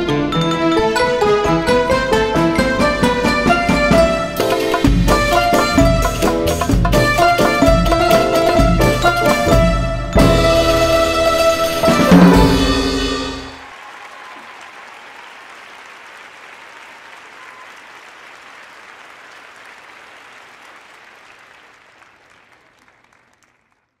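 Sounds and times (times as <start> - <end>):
violin guitar and bass playing: 0.0 - 13.0
audience applause: 13.5 - 24.0.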